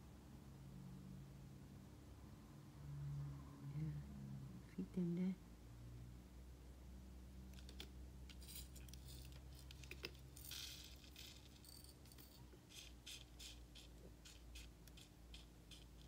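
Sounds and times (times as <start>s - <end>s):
small crystals and tools rattling: 7.6s - 16.0s.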